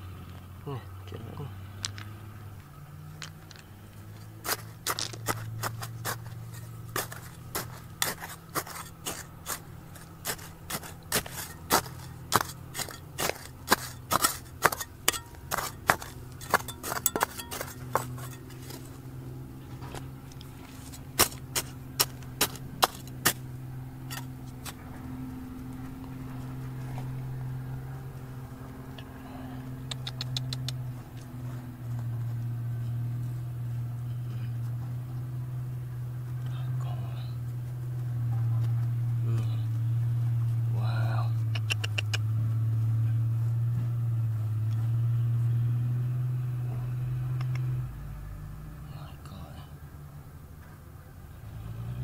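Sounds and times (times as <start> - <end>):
low steady hum: 0.0 - 51.6
metal tool clinking on stone: 4.5 - 19.0, 24.0 - 24.8.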